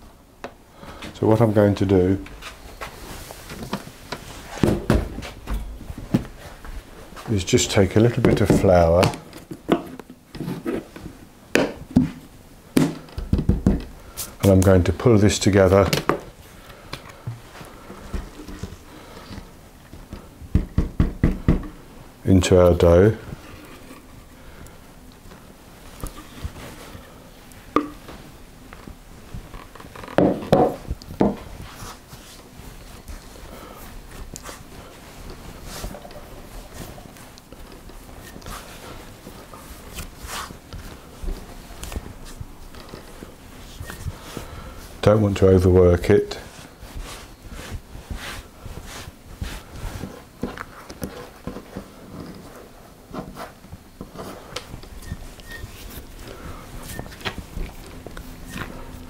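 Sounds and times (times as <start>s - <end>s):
hands patting pastry dough: 11.5s - 14.9s, 15.5s - 21.9s, 30.2s - 59.0s.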